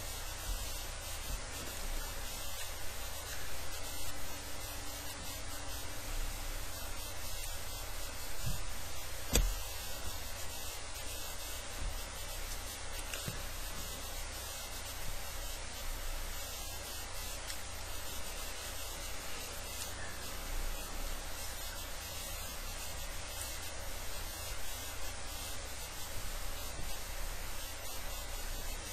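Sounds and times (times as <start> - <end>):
recording noise hiss: 0.0 - 28.9
soft thump: 9.3 - 9.7.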